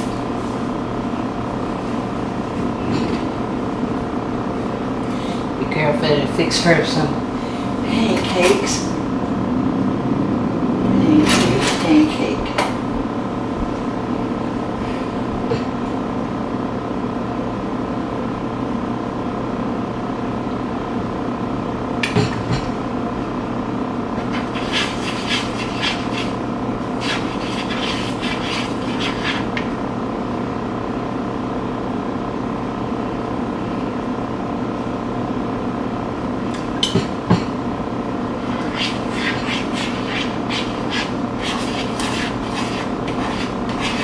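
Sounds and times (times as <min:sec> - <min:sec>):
steady hum: 0:00.0 - 0:44.0
utensil scraping a bowl: 0:24.2 - 0:29.7, 0:38.4 - 0:44.0.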